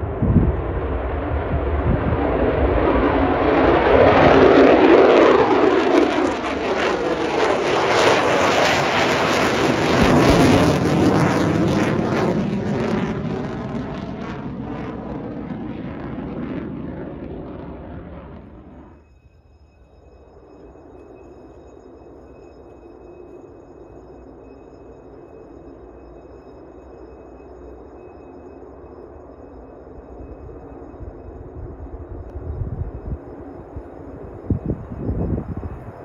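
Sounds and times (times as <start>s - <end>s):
loud jet engine roar: 0.0s - 19.0s.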